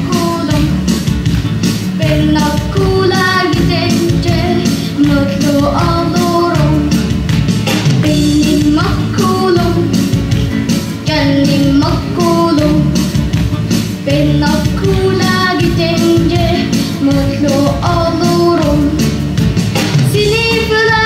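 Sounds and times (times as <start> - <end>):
boy singing into a microphone: 0.0 - 0.8, 2.0 - 6.9, 8.1 - 10.0, 11.1 - 13.0, 14.1 - 19.1, 20.1 - 21.0
backing music with steady beat: 0.0 - 21.0.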